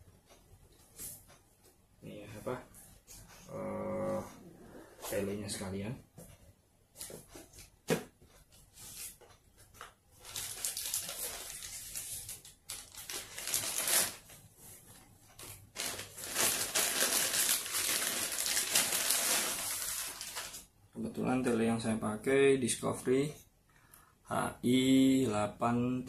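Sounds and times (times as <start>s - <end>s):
plastic bag crinkling: 10.2s - 14.3s, 15.4s - 20.7s.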